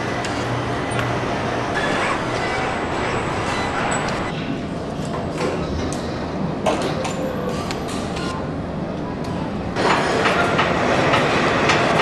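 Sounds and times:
machinery hum and whir: 0.0s - 12.0s.

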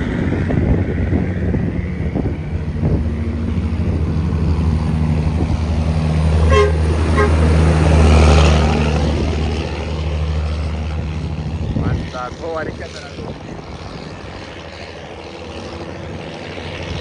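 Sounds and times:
diesel truck engine running: 0.0s - 17.0s
truck horn toots: 6.4s - 7.7s.

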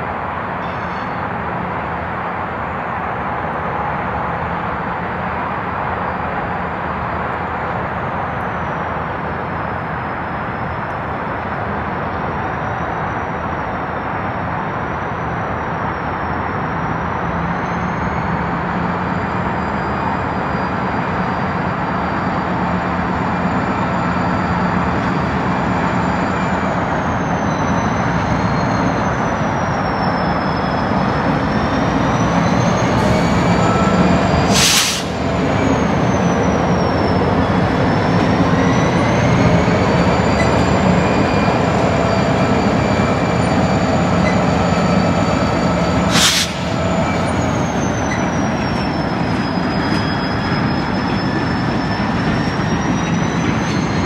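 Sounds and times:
diesel locomotive running: 0.0s - 54.0s
freight cars rolling rumble: 0.0s - 54.0s
faint high squeal: 0.6s - 1.4s, 15.7s - 54.0s.

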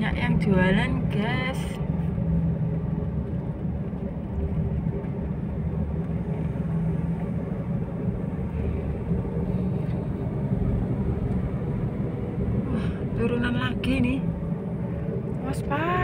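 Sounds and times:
car engine and road rumble: 0.0s - 16.0s.

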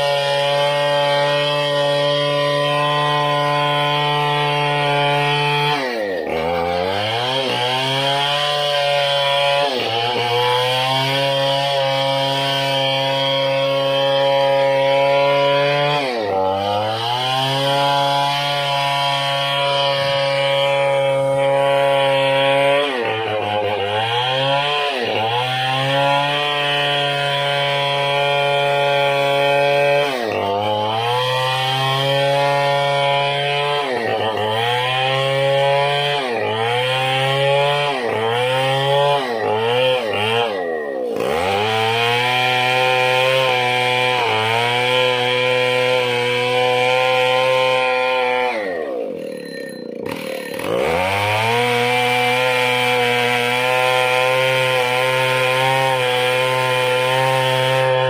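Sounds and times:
chainsaw cutting wood: 0.0s - 58.0s.

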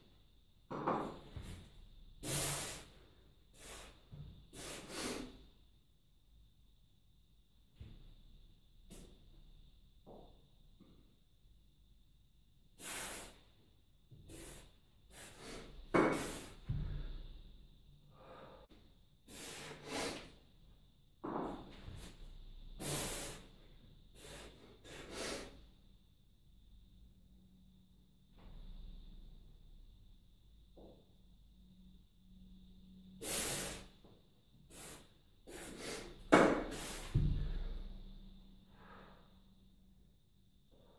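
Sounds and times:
man exhaling forcefully: 2.2s - 3.0s, 12.8s - 13.5s, 22.8s - 23.5s, 33.2s - 34.0s, 34.7s - 38.0s.

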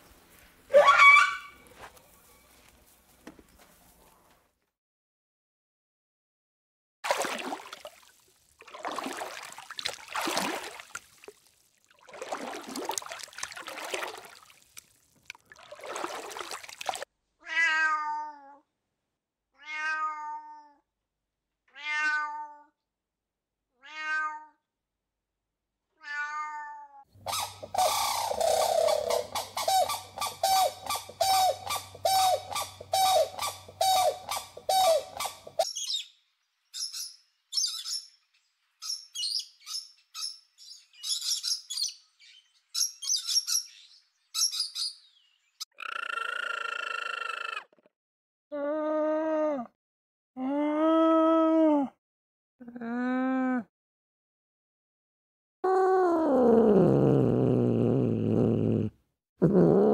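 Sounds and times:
water splashing: 7.0s - 17.1s
crane calling rapidly: 27.2s - 35.6s
drawn-out animal calls: 27.3s - 35.7s, 45.7s - 47.9s
high-pitched bird chirps: 27.3s - 36.2s, 36.8s - 38.2s, 38.8s - 47.7s.

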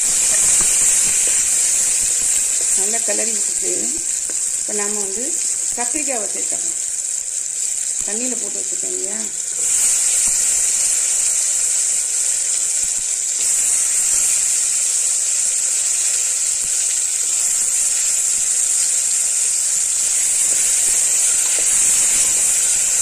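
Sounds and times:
oil sizzling: 0.0s - 23.0s.

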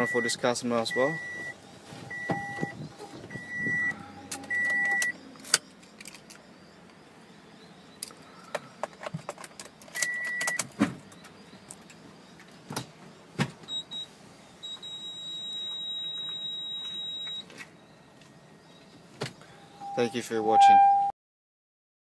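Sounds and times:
high steady beep: 0.0s - 5.2s, 13.7s - 17.5s, 19.8s - 21.1s
short electronic beeps: 0.0s - 5.2s, 13.7s - 17.5s, 19.8s - 21.1s
handling clicks and knocks: 8.0s - 12.0s.

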